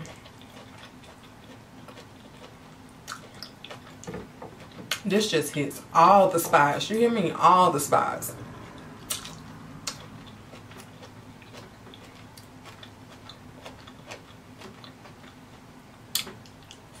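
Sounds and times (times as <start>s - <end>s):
wet chewing and lip smacks: 0.0s - 5.1s, 8.6s - 16.9s.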